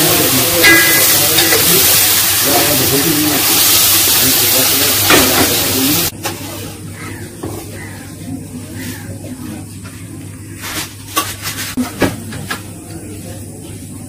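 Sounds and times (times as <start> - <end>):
metal spatula in a wok: 0.0 - 4.2
food sizzling in a wok: 0.0 - 6.8.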